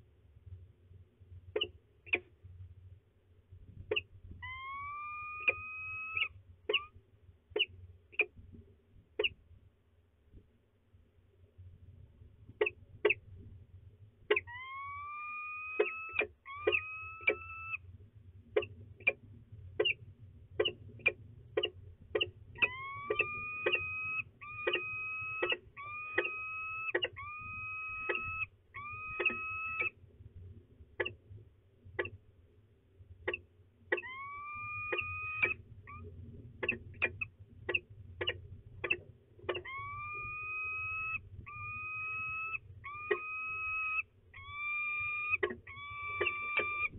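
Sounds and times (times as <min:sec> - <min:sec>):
falcons chipping calls: 0:03.9 - 0:06.9, 0:14.3 - 0:17.8, 0:21.6 - 0:30.0, 0:33.3 - 0:46.9
falcons whining calls: 0:03.9 - 0:06.9, 0:14.3 - 0:17.8, 0:22.2 - 0:30.0, 0:33.3 - 0:46.9.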